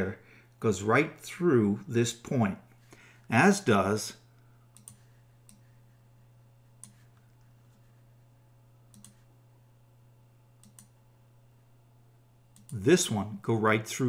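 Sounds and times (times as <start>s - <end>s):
low steady hum: 0.0s - 14.0s
computer mouse clicks: 4.7s - 5.6s, 6.8s - 7.4s, 8.9s - 9.2s, 10.6s - 11.0s, 12.5s - 12.8s.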